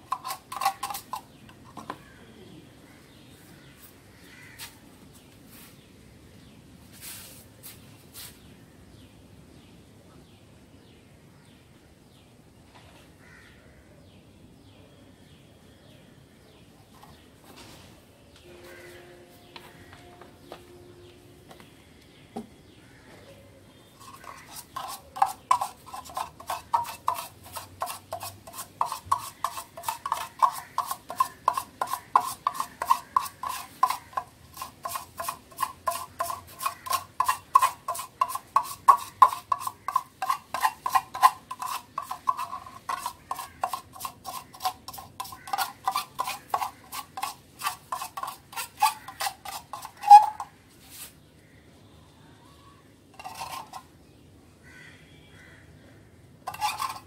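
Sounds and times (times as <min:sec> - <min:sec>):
stick scraping in metal tin: 0:00.0 - 0:01.8, 0:24.0 - 0:51.1, 0:53.1 - 0:53.9, 0:56.5 - 0:57.0.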